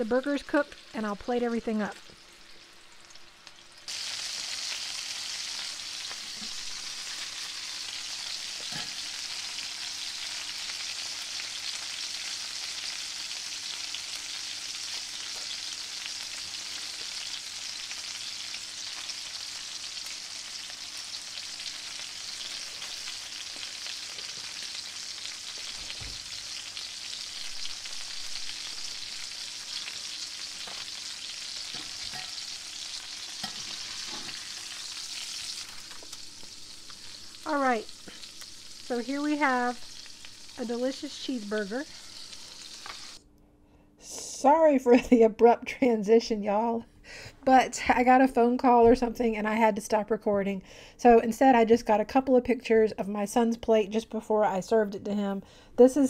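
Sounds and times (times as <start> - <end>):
burger patties sizzling in a skillet: 0.0 - 43.2.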